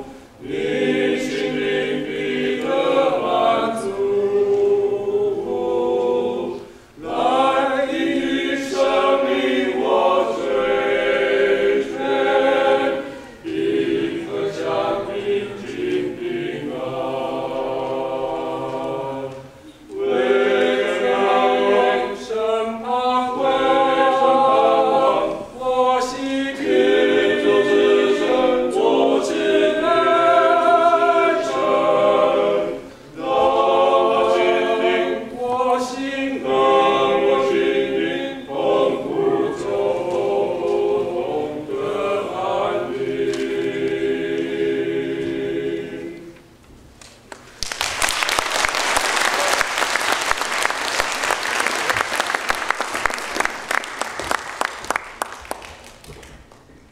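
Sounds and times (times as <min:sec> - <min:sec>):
men singing in close harmony: 0:20.0 - 0:46.3.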